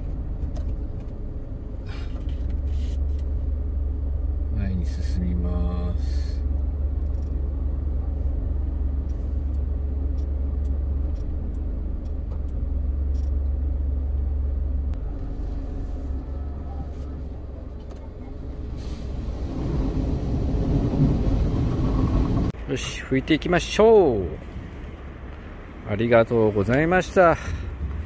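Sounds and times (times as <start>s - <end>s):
low rumble: 0.0s - 22.7s
car wash brushes and water spray: 2.0s - 3.4s, 16.9s - 22.6s.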